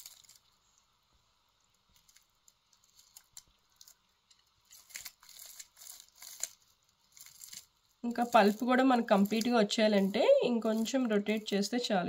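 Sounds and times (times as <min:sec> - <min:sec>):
whisk crackling in orange pulp: 0:01.5 - 0:11.9.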